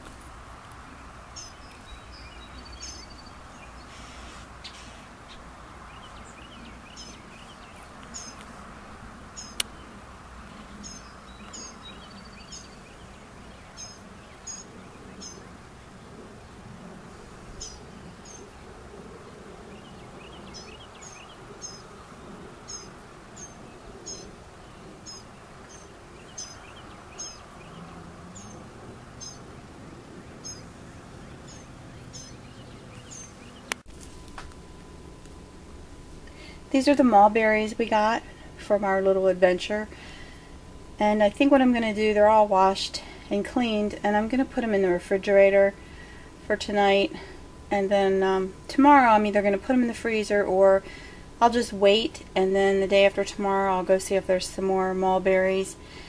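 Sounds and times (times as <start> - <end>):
birds chirping: 0.0 - 33.9
steady background noise: 0.0 - 56.0.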